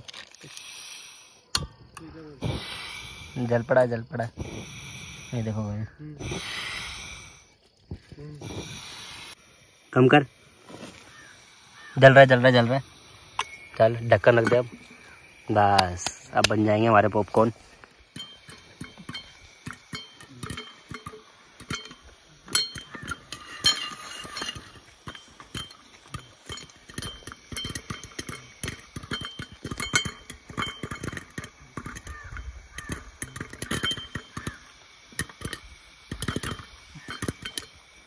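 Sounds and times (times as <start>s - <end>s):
popcorn popping in metal pot: 18.2s - 37.8s.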